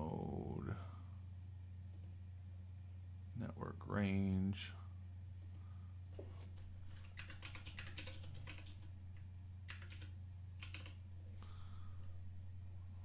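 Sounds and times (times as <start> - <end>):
faint low hum: 0.0 - 13.0
typing on a computer keyboard: 7.0 - 8.9, 9.7 - 11.0.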